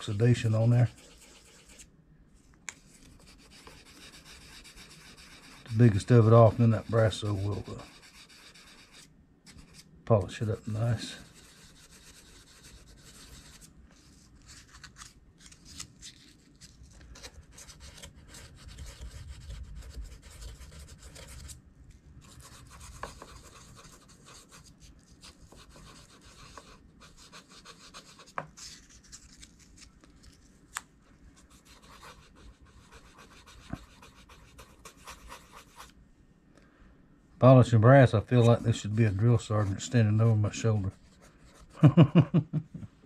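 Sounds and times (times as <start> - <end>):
sandpaper scratching on metal: 3.6 - 9.0.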